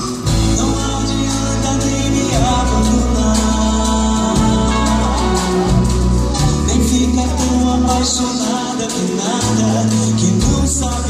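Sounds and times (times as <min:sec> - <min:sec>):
acoustic guitar: 0:00.0 - 0:11.0
low bass notes: 0:00.0 - 0:11.0.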